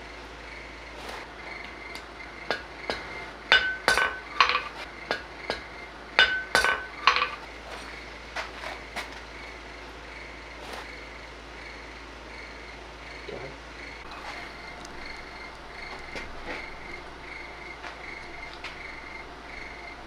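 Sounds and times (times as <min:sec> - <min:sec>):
anvil metallic ring: 0:02.5 - 0:07.4
hammer striking steel anvil: 0:02.5 - 0:07.4.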